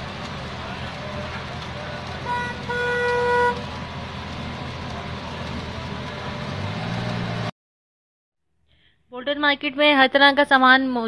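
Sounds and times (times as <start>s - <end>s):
street traffic: 0.0s - 7.6s
vehicle horn honking: 2.2s - 3.6s.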